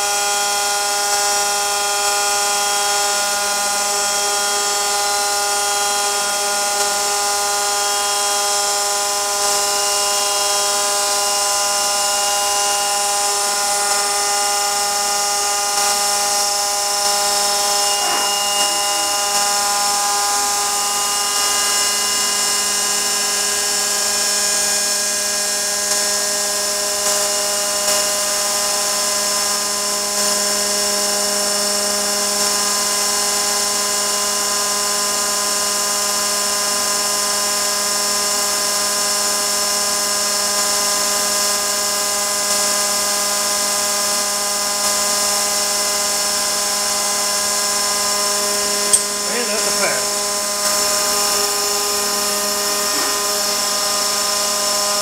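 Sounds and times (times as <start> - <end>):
milling machine whine: 0.0 - 36.9, 43.1 - 55.0
hiss of wood cutting: 4.2 - 26.1, 45.8 - 55.0.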